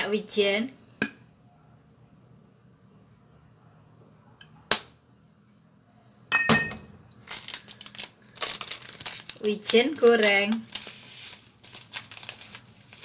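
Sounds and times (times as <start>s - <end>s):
kitchenware clinking: 6.3s - 6.9s
plastic bag crinkling: 7.2s - 13.0s.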